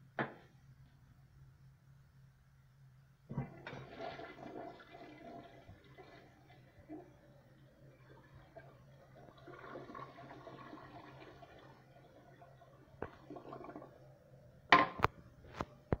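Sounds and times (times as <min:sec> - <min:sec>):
toilet water swirling and trickling: 0:03.3 - 0:14.1.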